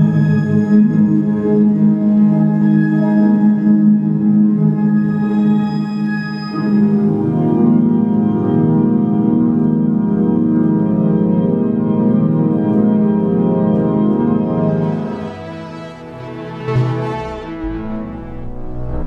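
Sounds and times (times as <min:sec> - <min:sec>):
sustained organ-like chord: 0:11.0 - 0:19.0.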